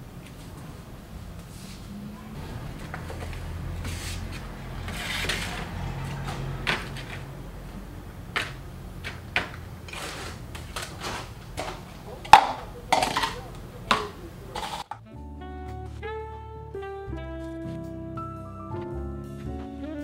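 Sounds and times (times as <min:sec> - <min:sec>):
tin cans knocking on tiles: 0:11.6 - 0:15.0.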